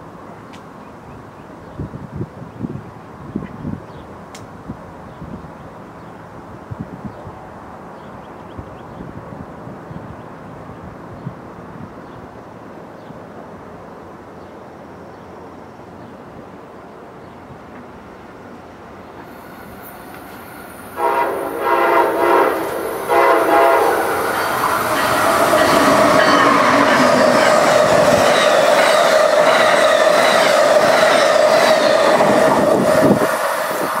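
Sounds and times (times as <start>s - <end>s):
train passing with rail clatter: 0.0s - 34.0s
train horn blasts: 20.9s - 28.2s.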